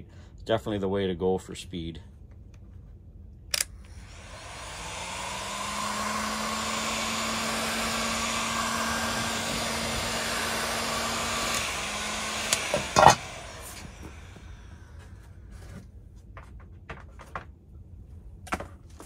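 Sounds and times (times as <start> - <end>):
heat gun running: 3.6 - 15.4.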